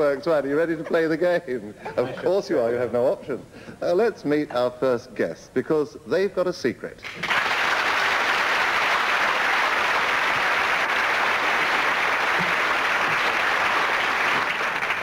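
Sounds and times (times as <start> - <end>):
audience applauding: 7.0 - 15.0.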